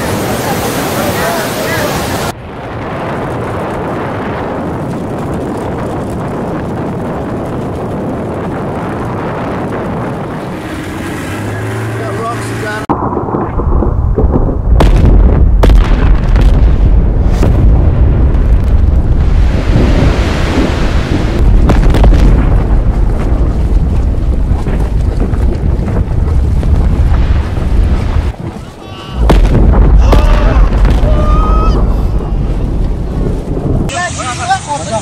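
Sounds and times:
volcanic eruption rumble: 0:00.0 - 0:35.0
sharp cracks: 0:21.4 - 0:34.0.

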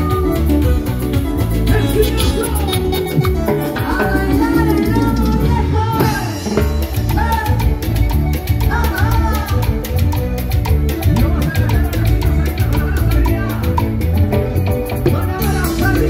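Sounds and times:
keyboards: 0:00.0 - 0:16.0
latin band music: 0:00.0 - 0:16.0
steady drum beat: 0:00.0 - 0:16.0.

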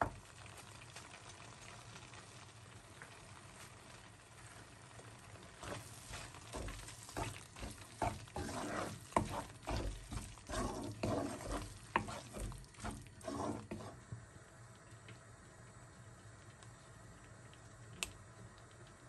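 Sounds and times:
faint sizzle: 0:00.0 - 0:19.0
wooden spatula stirring in pan: 0:03.0 - 0:14.3.

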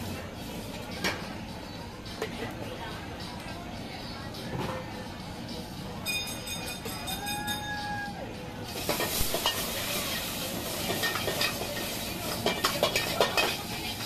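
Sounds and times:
food sizzling in wok: 0:08.7 - 0:14.0
ingredients hitting hot wok: 0:08.8 - 0:13.6.

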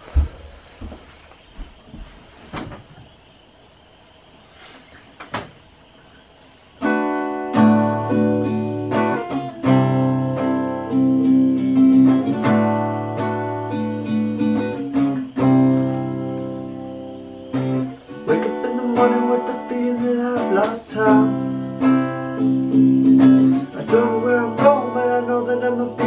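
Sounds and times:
acoustic guitar picked chords: 0:06.8 - 0:26.0.

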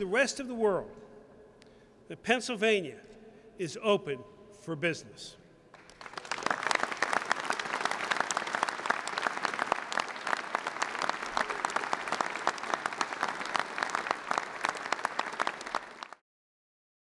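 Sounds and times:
crowd clapping: 0:05.7 - 0:16.2.

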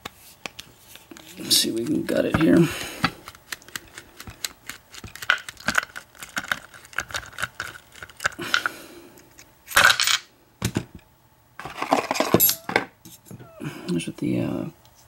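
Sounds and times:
parts clattering on tray: 0:09.7 - 0:11.0, 0:11.6 - 0:13.4.

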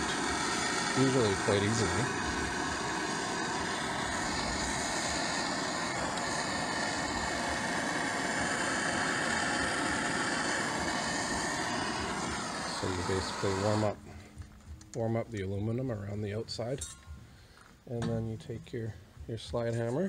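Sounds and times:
blow torch hissing: 0:00.0 - 0:14.2.

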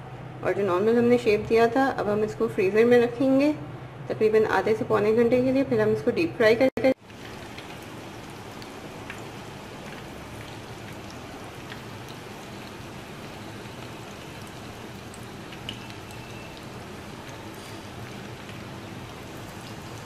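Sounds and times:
food frying in hot oil: 0:06.9 - 0:20.0
oil popping and crackling: 0:07.0 - 0:20.0.

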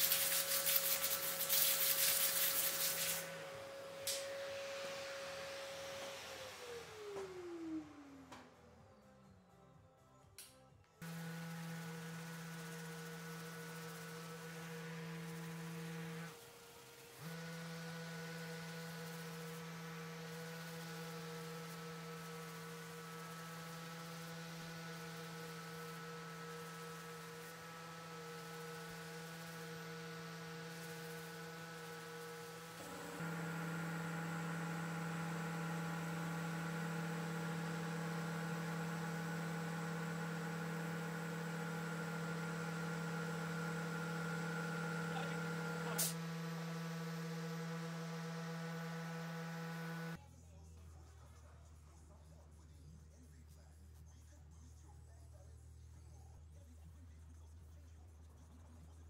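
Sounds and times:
orbital sander running: 0:00.0 - 0:08.2, 0:11.0 - 0:50.2.

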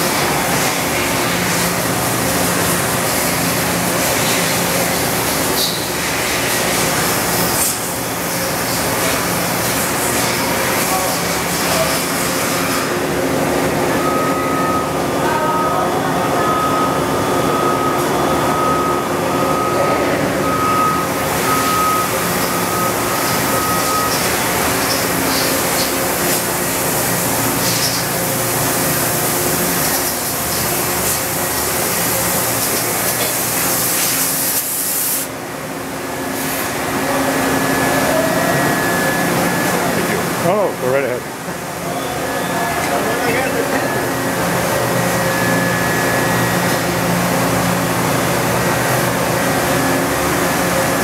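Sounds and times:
machine humming with hiss: 0:00.0 - 0:51.0
thin high whine: 0:36.6 - 0:41.2.

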